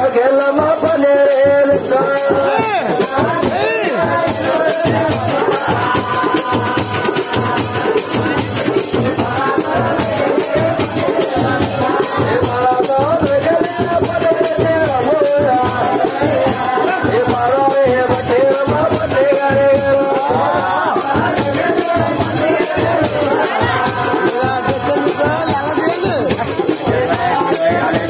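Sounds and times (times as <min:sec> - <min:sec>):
fast dense percussion: 0:00.0 - 0:28.0.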